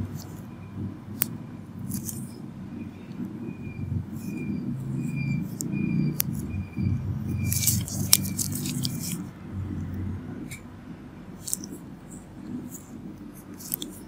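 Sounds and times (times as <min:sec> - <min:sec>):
crackly clicks: 0:00.2 - 0:02.4, 0:11.3 - 0:14.0
fingers rubbing on skin: 0:03.1 - 0:09.3, 0:11.4 - 0:14.0.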